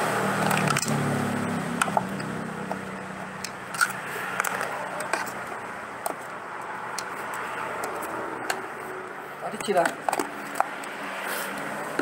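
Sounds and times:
screwdriver scraping and clicking: 1.8 - 8.8.

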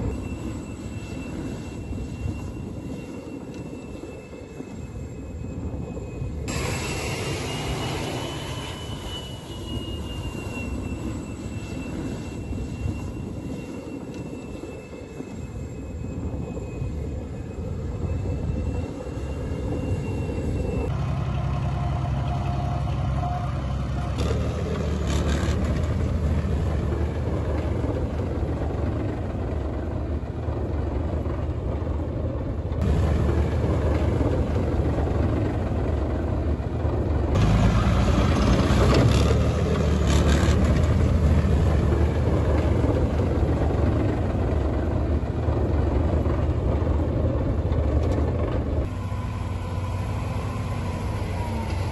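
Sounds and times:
tracked vehicle engines driving: 16.0 - 51.9.

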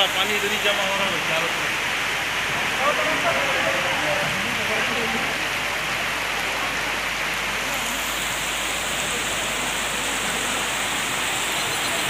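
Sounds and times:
rain on standing water: 0.0 - 12.0.

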